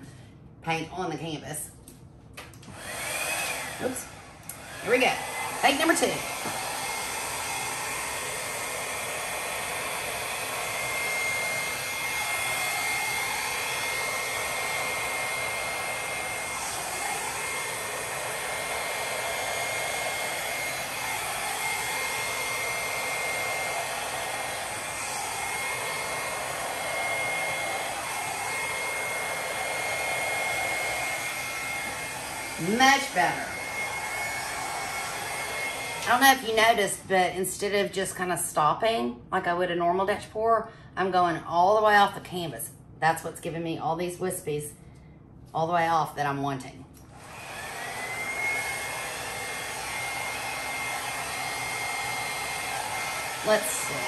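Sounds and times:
hair dryer running: 2.4 - 37.9, 47.0 - 54.0.

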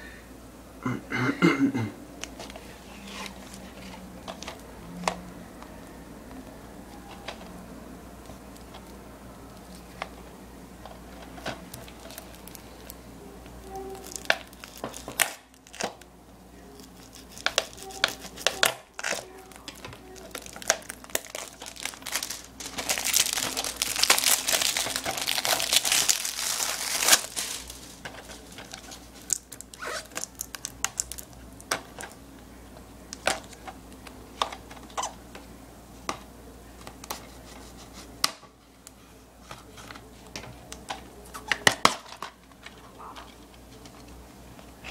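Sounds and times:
plastic wrap crinkling and tearing: 11.2 - 13.0, 13.7 - 16.0, 16.8 - 32.2.

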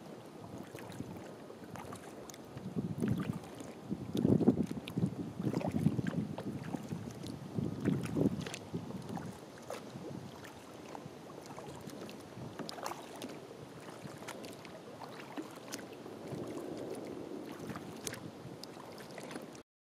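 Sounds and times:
water rushing: 0.0 - 19.6
water splashing and dripping: 10.4 - 19.5.

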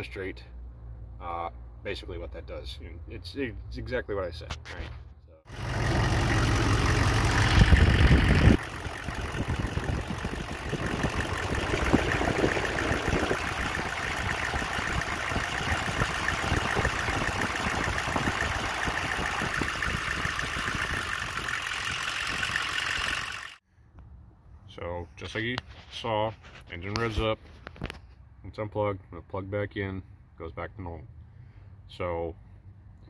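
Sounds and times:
diesel engine clattering: 5.5 - 23.6.

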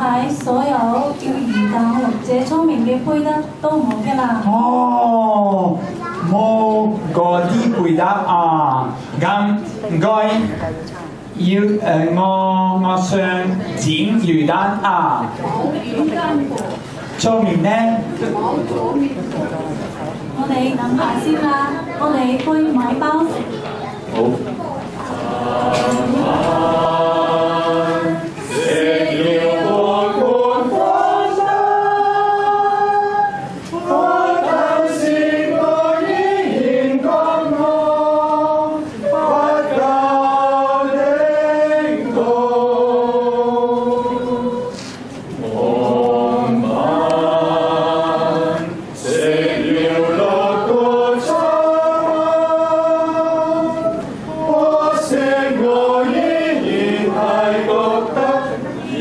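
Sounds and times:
mixed choir singing: 25.0 - 59.0.

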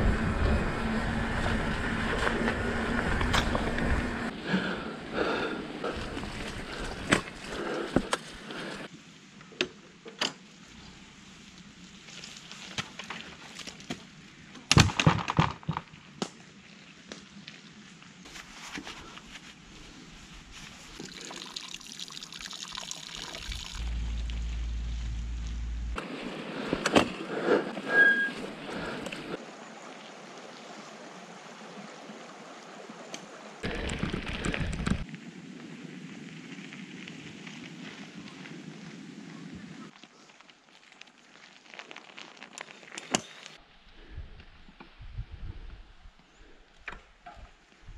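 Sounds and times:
bike knocking and rattling: 1.4 - 4.1, 33.6 - 35.1
bike tyres splashing through mud: 5.4 - 8.9, 16.6 - 29.4, 33.6 - 43.6.

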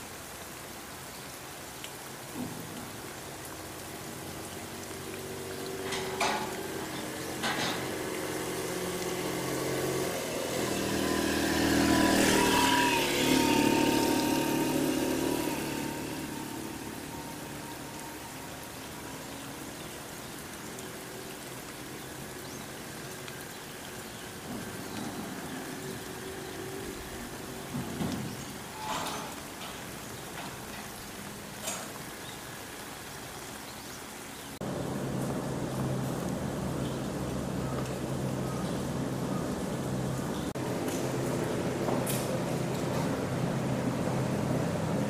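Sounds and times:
steady rain: 0.0 - 45.0
vehicle engine passing: 4.8 - 19.2.

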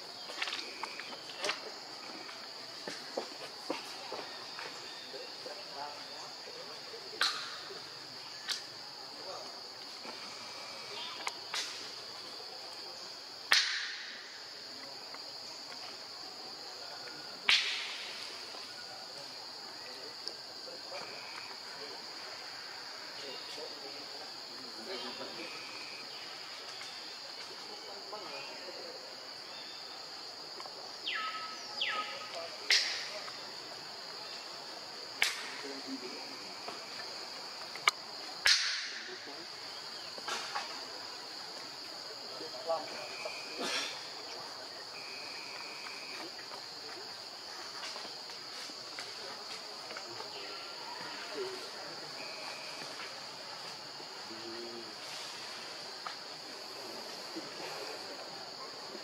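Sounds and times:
insects droning: 0.0 - 59.0
sharp whip-like cracks: 13.5 - 14.1, 17.5 - 18.2, 35.2 - 35.6, 38.4 - 39.0.

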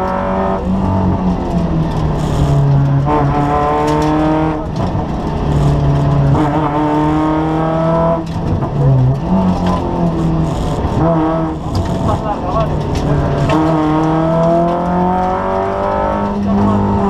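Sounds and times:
gear change: 0.0 - 17.0
rally car engine revving: 0.0 - 17.0.

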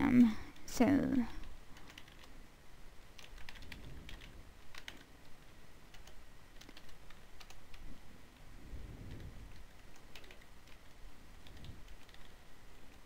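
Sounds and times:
typing on computer keyboard: 1.7 - 2.3, 3.2 - 5.1, 5.9 - 7.8, 9.1 - 13.0.

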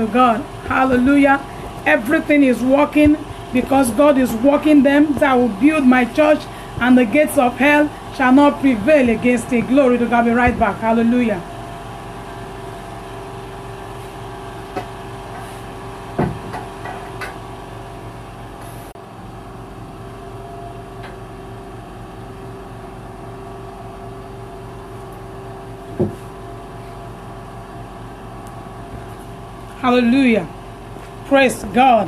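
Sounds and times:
mechanical room hum: 0.0 - 32.0
knocks and thumps: 16.2 - 17.4, 26.0 - 26.2.

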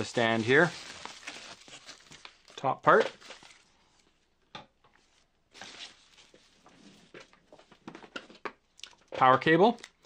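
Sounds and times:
plastic bag rustling: 0.0 - 4.2, 5.0 - 7.9.

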